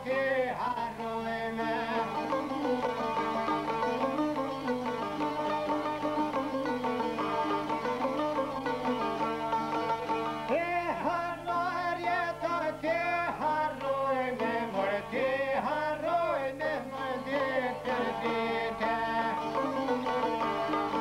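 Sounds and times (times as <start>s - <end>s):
person singing: 0.0s - 5.4s, 10.5s - 21.0s
plucked lutes: 1.5s - 11.1s, 17.0s - 21.0s.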